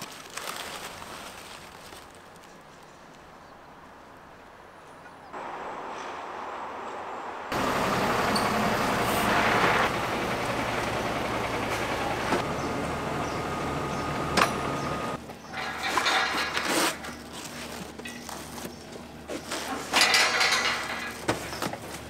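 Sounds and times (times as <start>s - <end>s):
machinery running: 5.4s - 16.2s.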